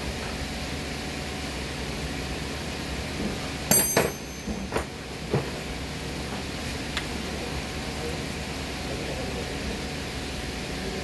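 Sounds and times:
pedestal fan running: 2.0s - 11.0s
sharp knocks and clicks: 3.7s - 4.9s.

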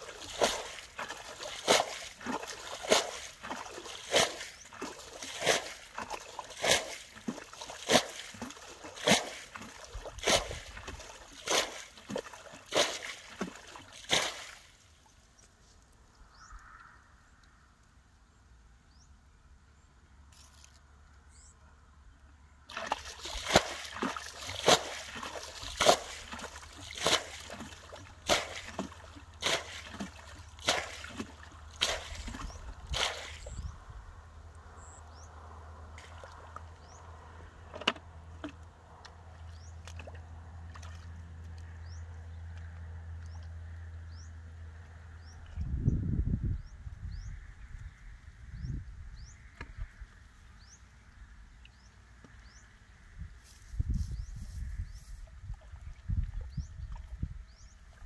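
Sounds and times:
bucket scooping and splashing water: 0.0s - 14.9s, 22.7s - 33.7s, 36.0s - 41.9s, 55.1s - 58.0s.

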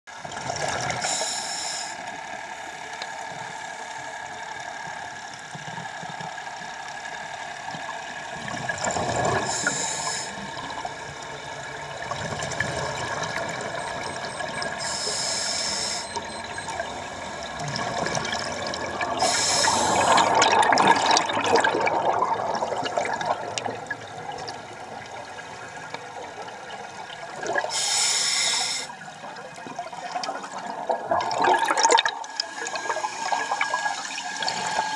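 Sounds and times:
exhaled air bubbles hissing: 0.2s - 2.2s, 8.3s - 25.4s, 27.2s - 34.9s
underwater air bubbling and rushing: 0.2s - 34.9s.

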